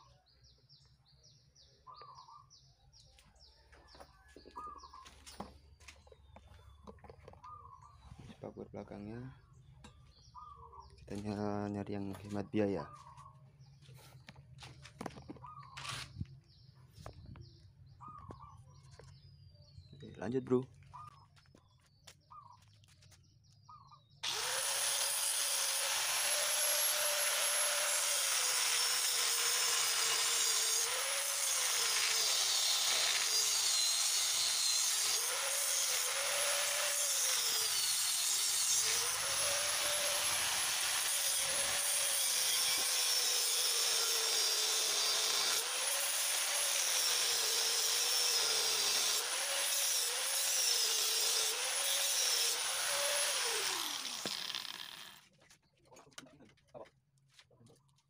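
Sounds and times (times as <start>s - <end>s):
angle grinder cutting steel: 24.2s - 55.2s.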